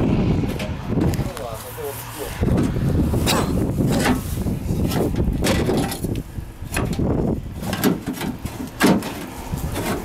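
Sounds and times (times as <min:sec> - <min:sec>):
metallic knocks and scrapes: 0:02.4 - 0:10.0.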